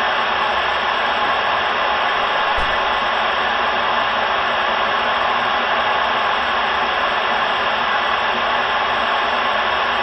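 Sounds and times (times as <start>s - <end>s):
low bump: 2.6s - 3.0s.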